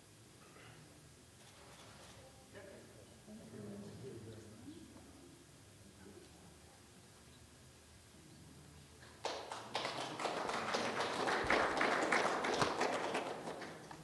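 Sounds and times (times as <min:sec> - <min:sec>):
audience applauding: 0:09.2 - 0:14.0.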